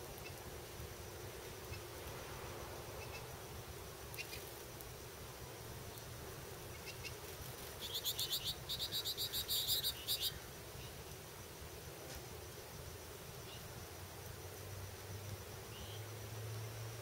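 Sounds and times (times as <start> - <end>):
songbird chattering call: 7.8 - 10.4.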